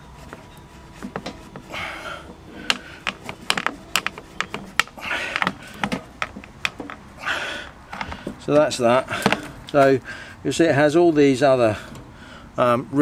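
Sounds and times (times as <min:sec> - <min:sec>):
rubber hose rubbing: 0:00.0 - 0:09.8.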